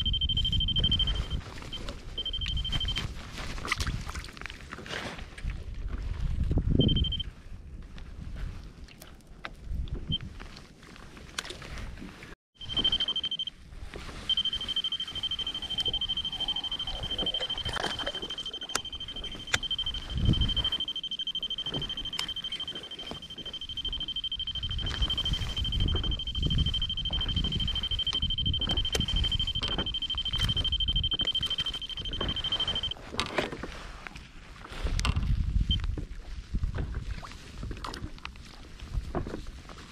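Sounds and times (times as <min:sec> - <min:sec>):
electronic alarm beep: 0:00.0 - 0:03.1, 0:06.8 - 0:07.3, 0:12.6 - 0:13.5, 0:14.2 - 0:33.0
water lapping against hull: 0:14.2 - 0:34.8, 0:36.0 - 0:39.9.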